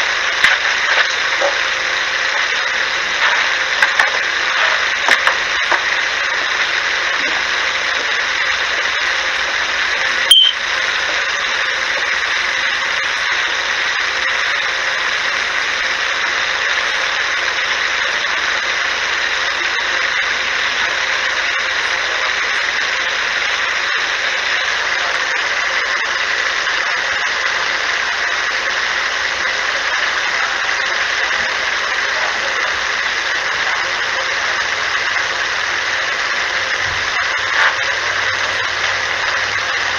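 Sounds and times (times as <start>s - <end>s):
sharp click: 10.3s - 10.6s.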